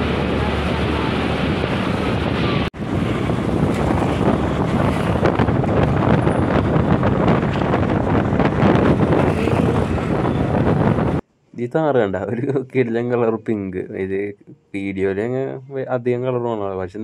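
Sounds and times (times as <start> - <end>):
motorbike traffic: 0.0 - 11.2
wind buffeting microphone: 0.0 - 11.2.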